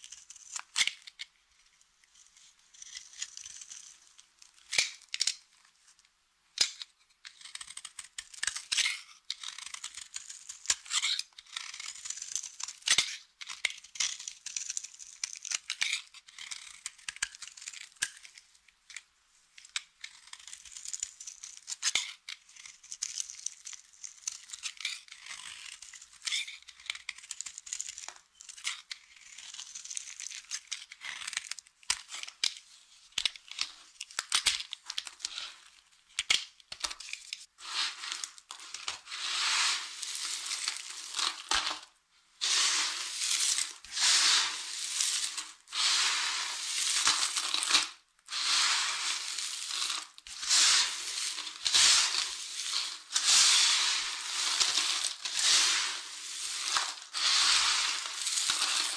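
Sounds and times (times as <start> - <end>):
knife shaving dry soap: 0.0 - 1.3, 2.1 - 5.3, 6.6 - 19.0, 19.6 - 32.4.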